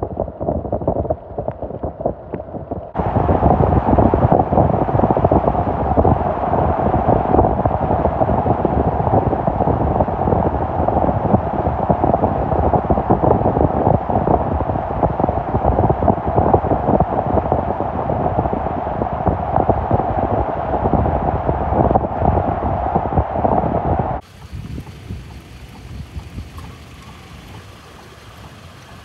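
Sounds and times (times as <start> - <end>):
wind on microphone: 0.0 - 29.0
tyres rolling on hail: 24.2 - 29.0.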